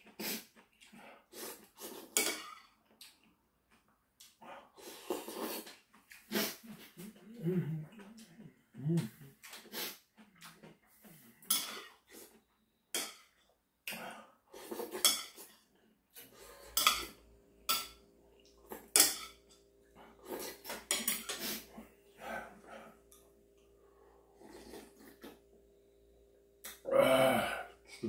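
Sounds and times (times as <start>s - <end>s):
slurping noodles: 0.0s - 0.6s, 1.2s - 2.2s, 4.8s - 7.7s, 14.5s - 15.1s, 24.4s - 25.4s
low steady hum: 16.4s - 28.0s.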